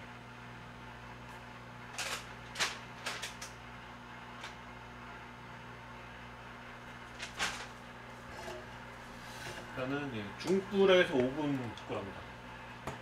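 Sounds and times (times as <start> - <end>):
steady low hum: 0.0 - 13.0
clicks and rustles of handling: 1.3 - 3.6.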